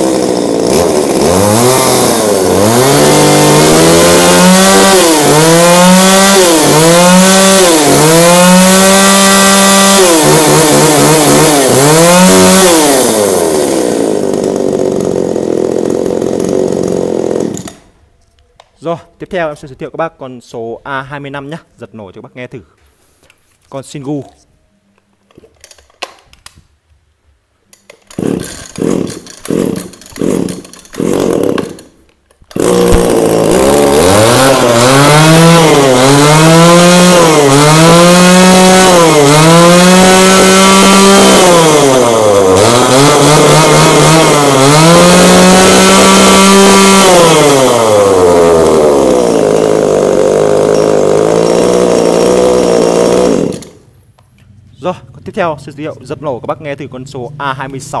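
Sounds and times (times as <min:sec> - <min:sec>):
chainsaw engine revving: 0:00.0 - 0:17.9, 0:28.0 - 0:53.9
chainsaw starter cord pulls: 0:00.0 - 0:17.9, 0:25.3 - 0:26.5, 0:27.7 - 0:53.8.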